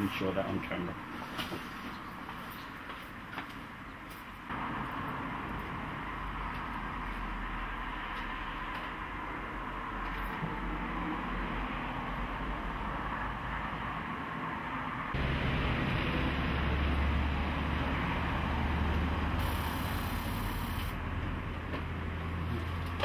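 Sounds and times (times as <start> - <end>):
electric fuel pump humming: 19.4 - 21.0.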